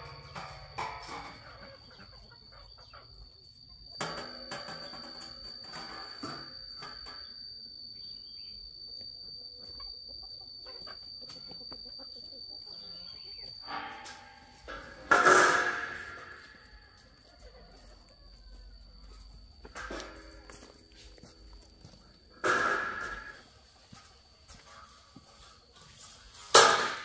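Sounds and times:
chickens clucking: 0:00.0 - 0:05.6, 0:08.9 - 0:21.2
high-pitched whine: 0:00.0 - 0:27.0.

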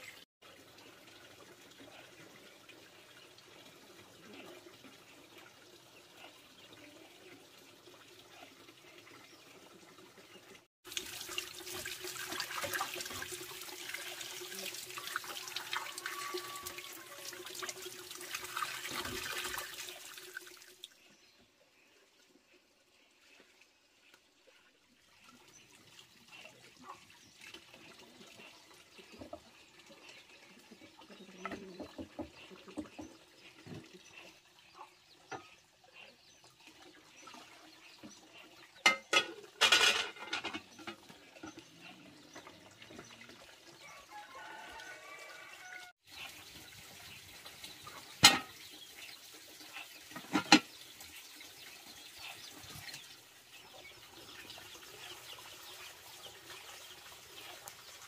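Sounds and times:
water splashing in a basin: 0:10.8 - 0:21.0.

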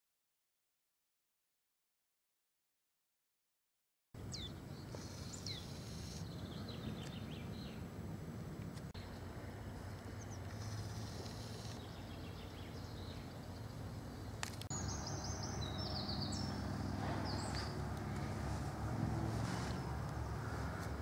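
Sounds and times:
songbird chirping trills: 0:04.2 - 0:08.0, 0:08.9 - 0:21.0
steady low hum: 0:04.2 - 0:21.0.

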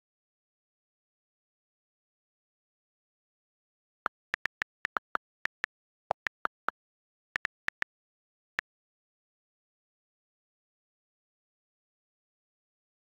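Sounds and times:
on-screen keyboard clicks: 0:04.1 - 0:06.8, 0:07.4 - 0:07.9.

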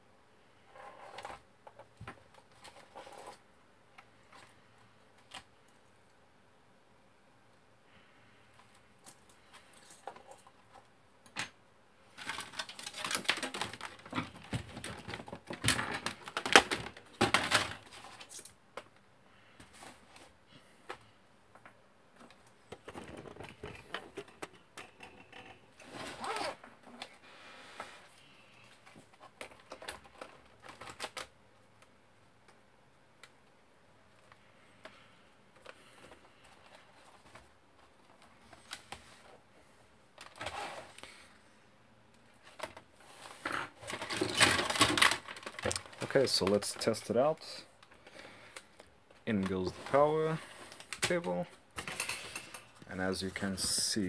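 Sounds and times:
plastic laptop parts clicking: 0:29.2 - 0:31.9.

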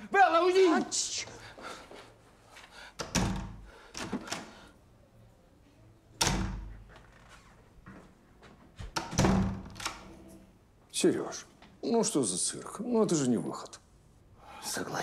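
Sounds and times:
heavy wooden door banging: 0:09.0 - 0:09.9.

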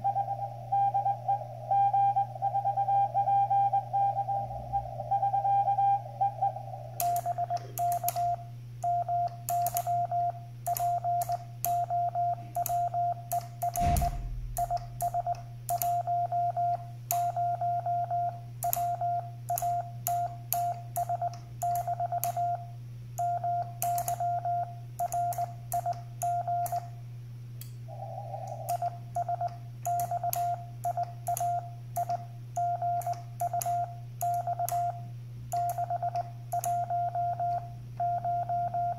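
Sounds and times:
morse code tone: 0:00.0 - 0:06.6, 0:35.7 - 0:38.9
steady low hum: 0:00.0 - 0:38.9
sharp clicks: 0:07.0 - 0:08.4, 0:09.2 - 0:10.0, 0:10.6 - 0:11.9, 0:12.5 - 0:16.0, 0:18.6 - 0:18.9, 0:19.5 - 0:22.4, 0:23.8 - 0:24.3, 0:25.0 - 0:26.9, 0:28.5 - 0:34.9, 0:35.5 - 0:36.8
low thump: 0:13.8 - 0:15.0.

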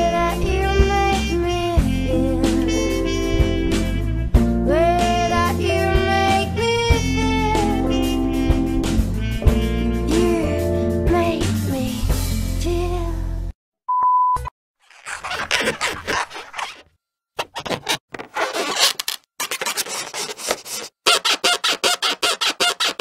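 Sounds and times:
short steady beep: 0:13.9 - 0:14.5
rubber balloons squeaking: 0:14.8 - 0:23.0.

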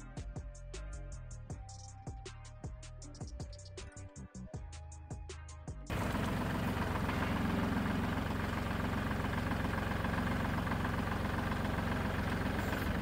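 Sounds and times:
tractor engine idling: 0:05.9 - 0:13.0.

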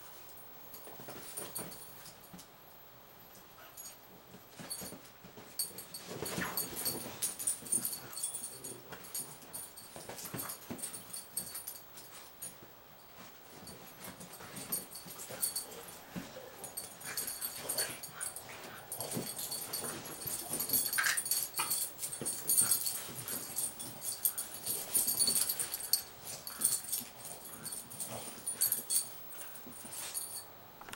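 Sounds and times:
dogs playing rough: 0:03.6 - 0:30.4
scuffles and claw clicks: 0:13.2 - 0:30.9.

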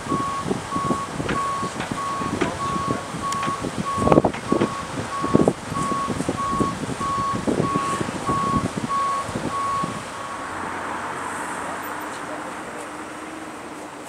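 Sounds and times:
forklift reversing alarm beeping: 0:00.0 - 0:10.5
low knocks: 0:01.2 - 0:06.7.

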